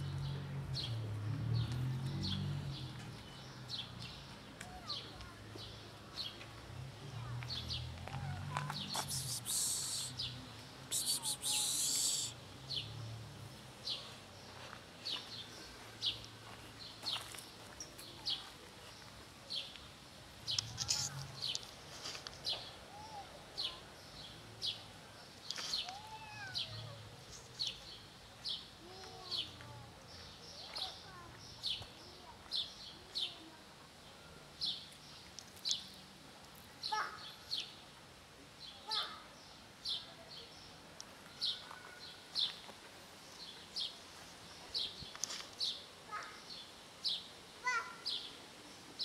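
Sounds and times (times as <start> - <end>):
bird chirping: 8.7 - 12.9
brief rustle: 20.5 - 22.7.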